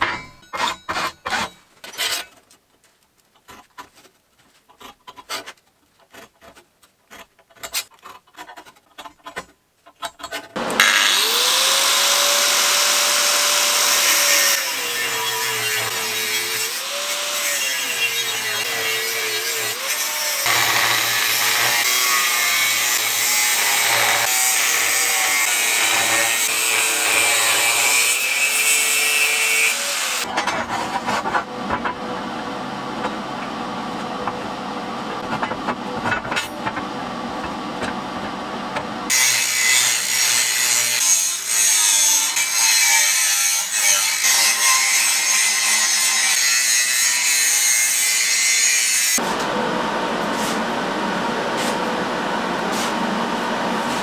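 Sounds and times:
angle grinder cutting steel: 0:10.6 - 0:30.3, 0:39.1 - 0:49.3.

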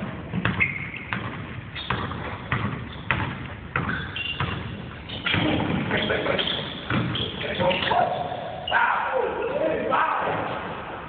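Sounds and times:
basketball dribbling on hardwood: 0:00.0 - 0:06.0, 0:06.7 - 0:07.2
sneakers squeaking on floor: 0:00.0 - 0:08.8.

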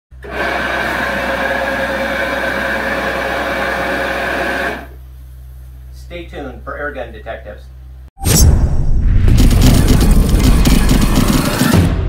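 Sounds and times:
carpet cleaning machine whining: 0:00.2 - 0:05.0.

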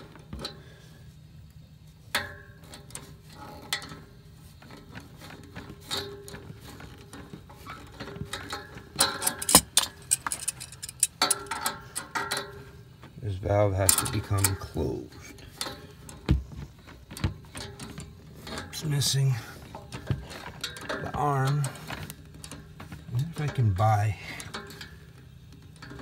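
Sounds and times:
metallic knock: 0:09.2 - 0:11.7
pliers clicking on metal valve: 0:09.2 - 0:12.1.

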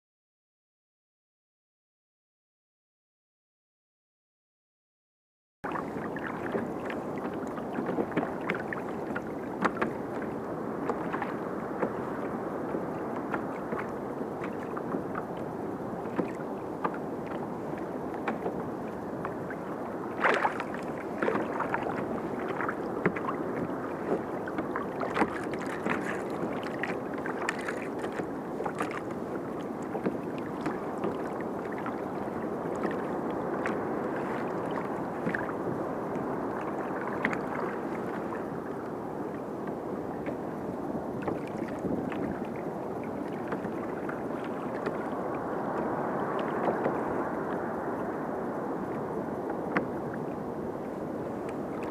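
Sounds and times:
water slapping against hull: 0:05.6 - 0:51.9.

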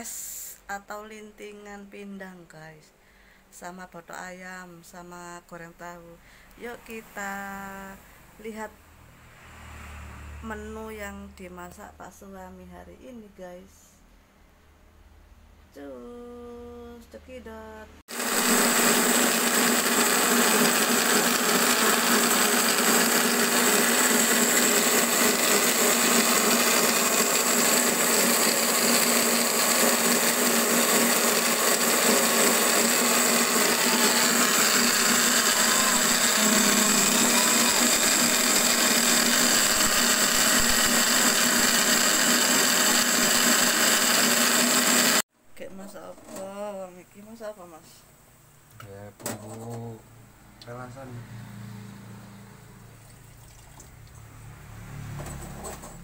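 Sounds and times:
blender motor whine: 0:18.1 - 0:45.2.

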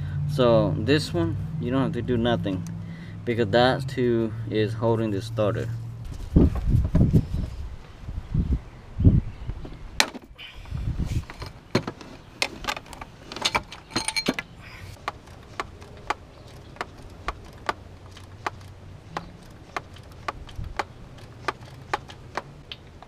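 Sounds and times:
ratchet wrench clicking: 0:15.0 - 0:22.5.

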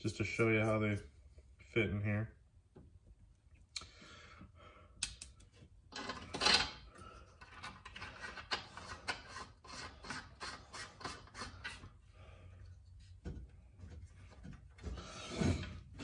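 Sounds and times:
metal nut scraping on fitting: 0:07.4 - 0:11.9.

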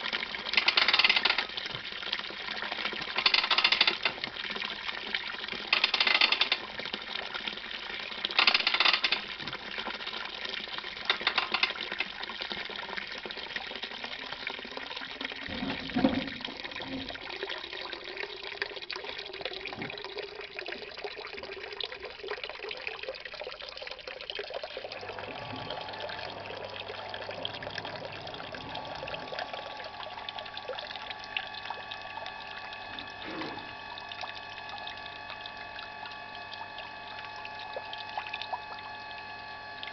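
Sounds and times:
juice pouring and splashing: 0:00.0 - 0:39.9
steady low hum: 0:25.2 - 0:39.9.

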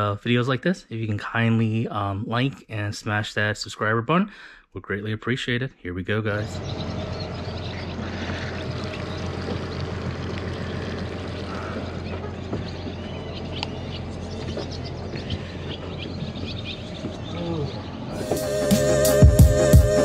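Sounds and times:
boat motor idling: 0:06.3 - 0:20.0
water washing along hull: 0:06.5 - 0:18.0.

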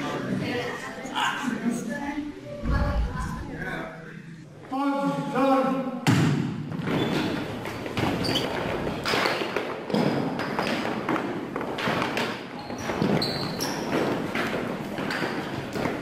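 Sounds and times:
voices and shouts in a hall: 0:00.0 - 0:10.9.

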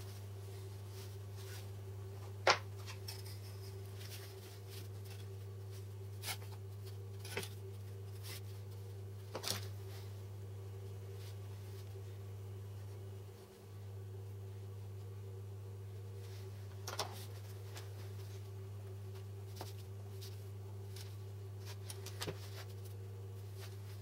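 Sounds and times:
low electrical hum: 0:00.0 - 0:24.0.

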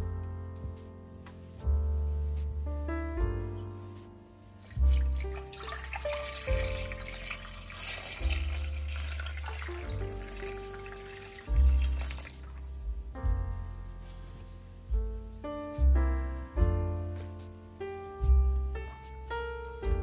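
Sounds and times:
piano music: 0:00.0 - 0:20.0
water pouring into a metal pot: 0:04.6 - 0:12.7.

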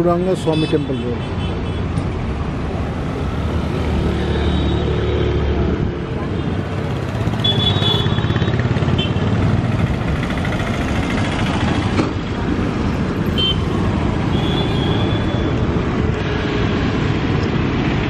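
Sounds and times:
cars passing: 0:00.0 - 0:18.0
motorcycles passing: 0:01.5 - 0:18.0.

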